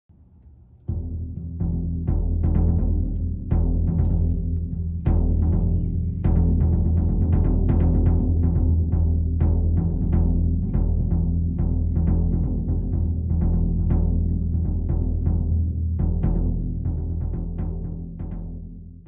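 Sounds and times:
bass drum hits: 0:00.8 - 0:18.8.

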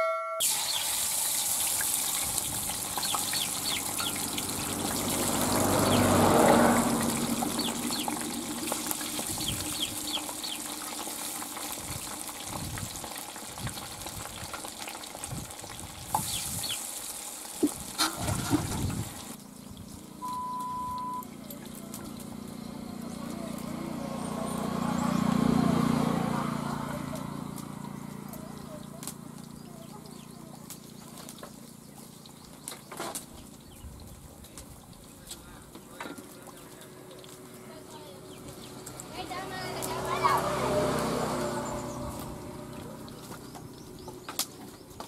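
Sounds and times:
oil crackling and popping: 0:00.4 - 0:20.2, 0:27.2 - 0:45.0
fish sizzling in hot oil: 0:00.4 - 0:21.2, 0:36.2 - 0:45.0.

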